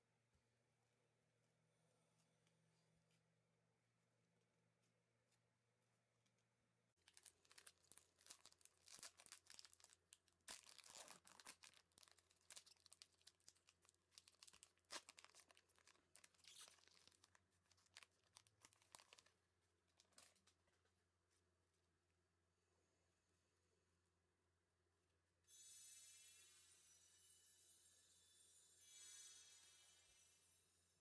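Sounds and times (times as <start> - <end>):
wrapper crinkling and tearing: 7.0 - 19.4.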